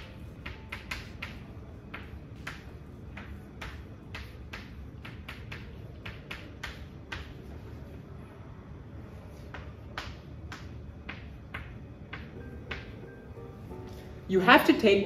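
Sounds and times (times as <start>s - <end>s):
chalk tapping on blackboard: 0.0s - 7.7s, 9.3s - 13.1s
low room hum: 0.0s - 15.0s.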